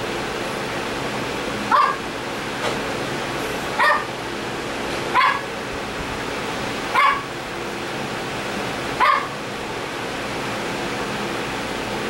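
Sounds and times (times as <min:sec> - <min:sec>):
small dog yapping: 0:01.7 - 0:02.0, 0:03.8 - 0:04.2, 0:05.1 - 0:05.5, 0:06.9 - 0:07.3, 0:09.0 - 0:09.4.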